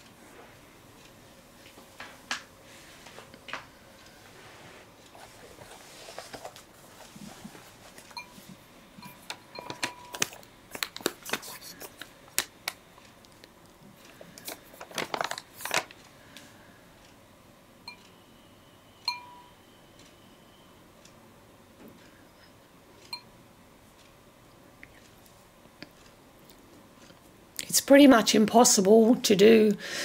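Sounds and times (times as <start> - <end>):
tools clicking and tapping: 9.0 - 13.5.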